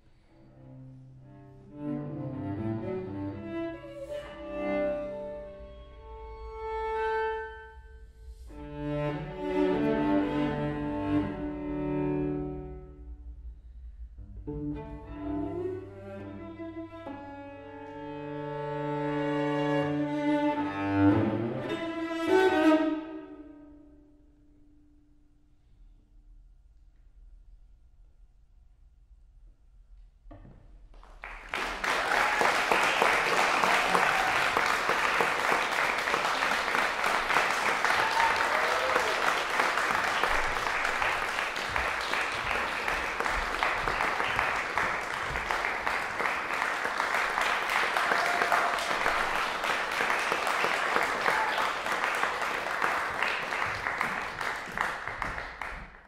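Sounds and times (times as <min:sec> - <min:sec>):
audience applauding: 0:31.0 - 0:56.0.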